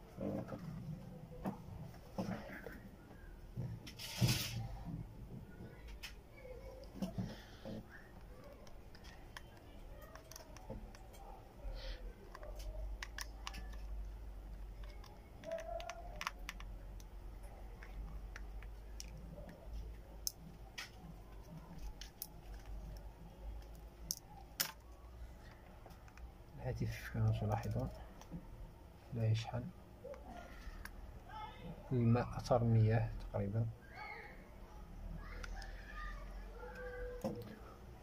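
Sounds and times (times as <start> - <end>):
plastic and metal clicks: 12.2 - 19.6, 20.2 - 26.3.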